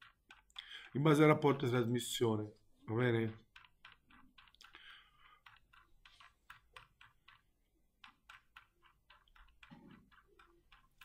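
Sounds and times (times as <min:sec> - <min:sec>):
computer keys clicking: 0:00.0 - 0:01.8, 0:03.0 - 0:11.0.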